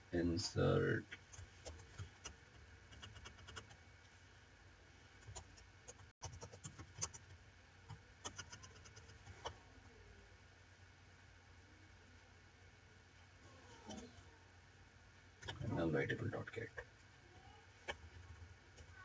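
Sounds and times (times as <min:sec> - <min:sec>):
computer keyboard and mouse clicks: 0:08.2 - 0:09.6.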